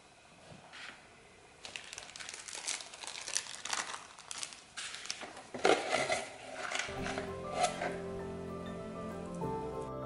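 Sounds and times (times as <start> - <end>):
plastic bags crinkling: 1.6 - 6.9.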